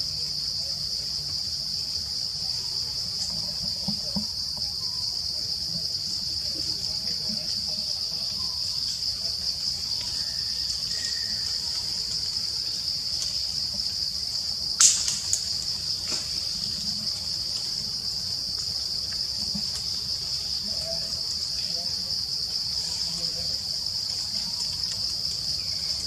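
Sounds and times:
insect chorus droning: 0.0 - 26.0
sharp snap: 14.8 - 15.4.

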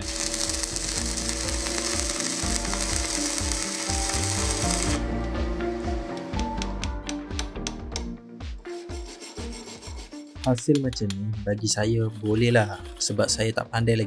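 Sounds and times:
welding arc crackling: 0.0 - 5.1.

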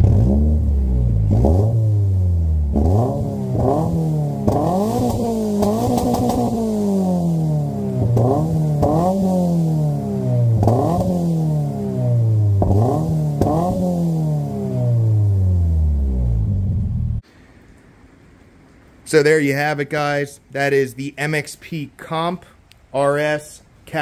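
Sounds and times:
car engine throttle blips: 0.0 - 17.2.

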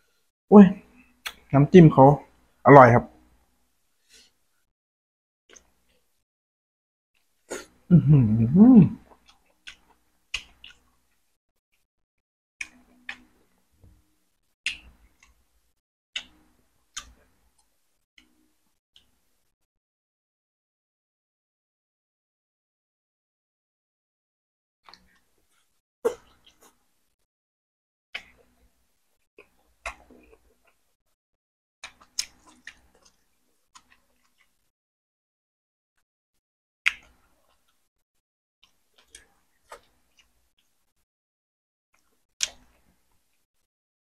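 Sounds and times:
wet chewing and lip smacks: 9.0 - 10.8, 31.8 - 34.6.

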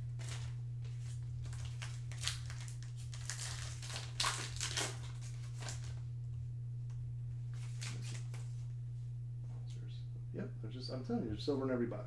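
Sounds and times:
steady low hum: 0.0 - 12.0
plastic wrapper crinkling and tearing: 0.2 - 6.0, 7.6 - 8.5.

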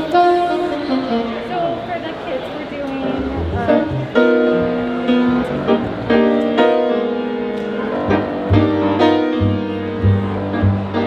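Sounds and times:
saxophone melody: 0.0 - 2.2
piano playing: 0.0 - 11.0
plucked upright bass: 3.0 - 6.5, 7.8 - 11.0.

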